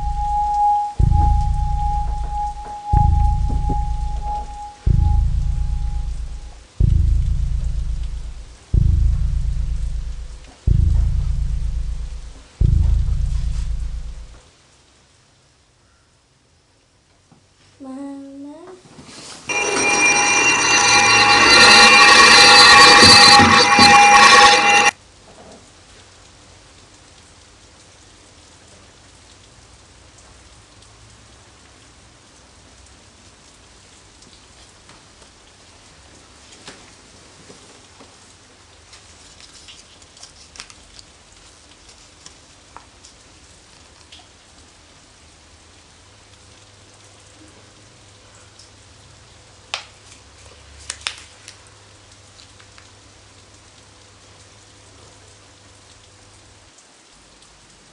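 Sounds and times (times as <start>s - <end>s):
faint low hum: 0.0s - 14.4s
shrill bell-like ringing: 0.0s - 14.4s, 19.5s - 24.9s
faint steady hiss: 0.0s - 20.5s.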